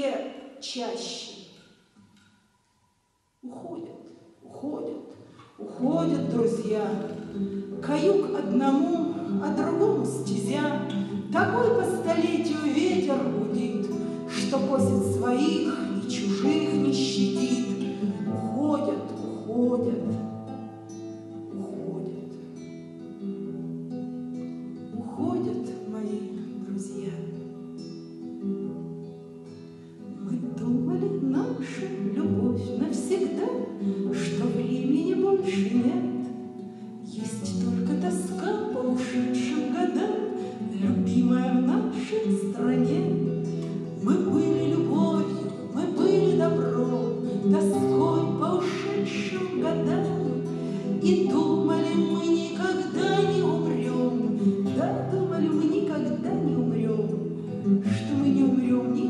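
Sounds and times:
acoustic guitar strumming chords: 0:05.1 - 0:59.0
woman singing: 0:05.6 - 0:20.4, 0:21.5 - 0:22.2, 0:24.9 - 0:27.4, 0:30.1 - 0:59.0.

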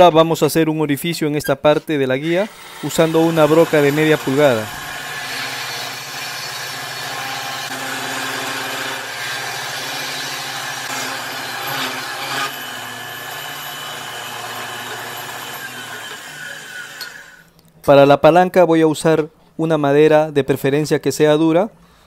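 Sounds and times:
drill bit scraping wood: 0:02.2 - 0:17.5
drill motor hum: 0:02.2 - 0:17.5.

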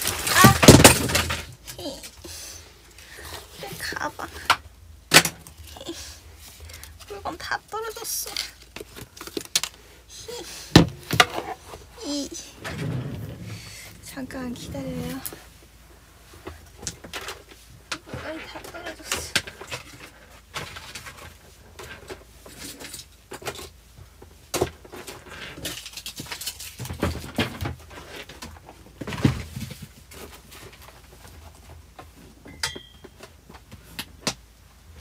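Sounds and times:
fabric rustling: 0:11.6 - 0:16.3.

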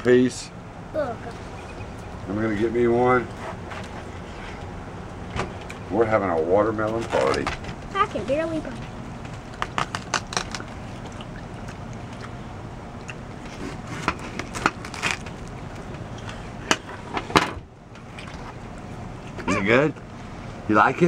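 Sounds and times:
watermelon bitten and chewed: 0:09.2 - 0:16.4.

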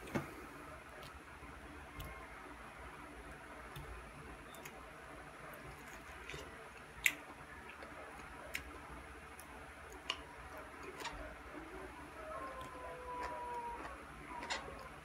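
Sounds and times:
faint chewing: 0:05.5 - 0:15.0.

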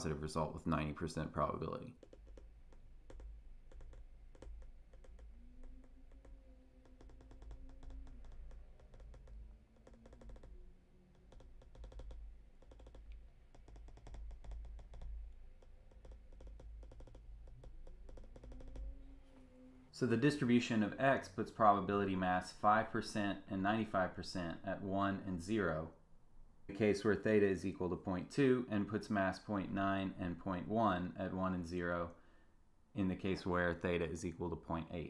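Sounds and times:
stylus tapping on tablet: 0:02.0 - 0:19.0.

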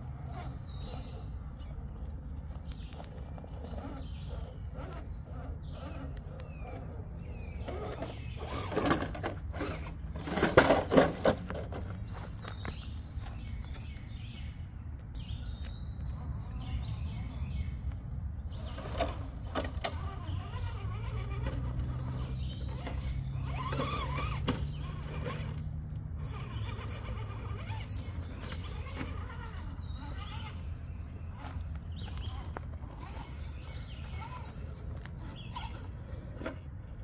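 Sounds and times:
birds chirping: 0:00.0 - 0:37.0
toy car motor whirring: 0:03.0 - 0:11.3, 0:18.6 - 0:30.7, 0:31.3 - 0:36.7.

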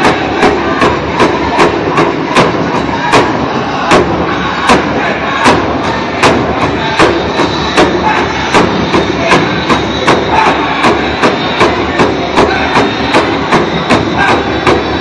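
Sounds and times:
big drum steady beat: 0:00.0 - 0:15.0
group singing: 0:00.0 - 0:15.0.

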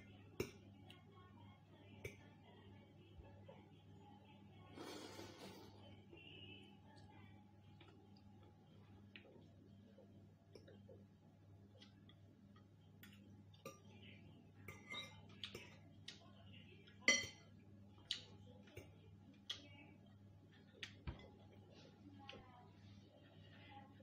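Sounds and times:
fork scraping ceramic bowl: 0:04.8 - 0:05.8.

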